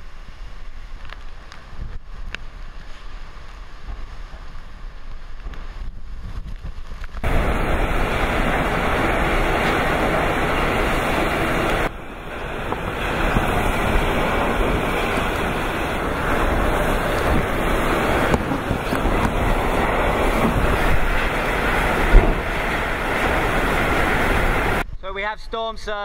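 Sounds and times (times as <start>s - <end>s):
strong wind: 0.0s - 25.1s
wind buffeting microphone: 3.8s - 25.0s
heavy rain: 6.9s - 24.8s.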